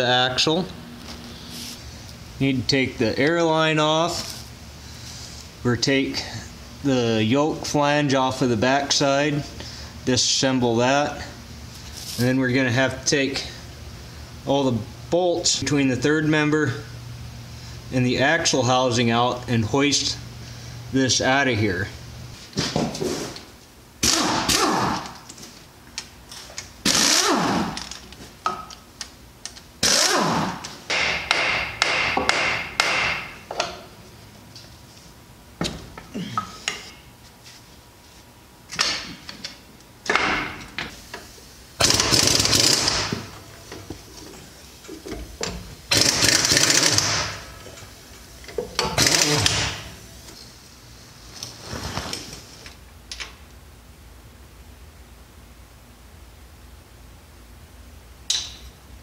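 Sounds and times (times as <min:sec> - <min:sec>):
pneumatic impact wrench: 0:24.0 - 0:25.2, 0:26.8 - 0:27.9, 0:29.8 - 0:33.2, 0:41.8 - 0:43.3, 0:45.9 - 0:47.6, 0:48.8 - 0:49.9.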